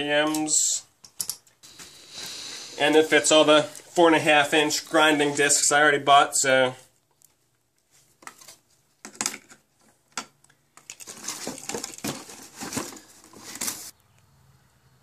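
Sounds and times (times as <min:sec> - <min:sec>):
clattering against cardboard box: 0:11.0 - 0:13.9.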